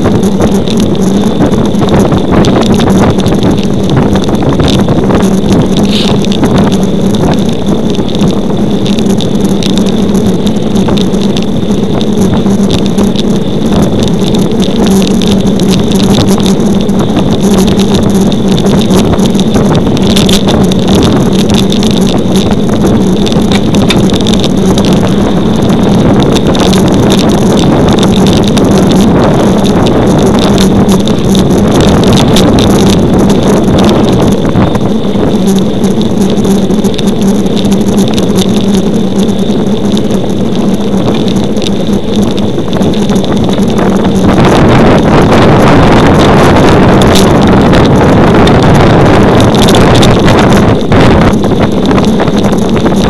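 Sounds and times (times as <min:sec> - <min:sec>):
bike clicks and rattles: 0:00.0 - 0:35.1
tyre noise on asphalt: 0:00.0 - 0:53.0
wind rushing over microphone: 0:00.0 - 0:53.0.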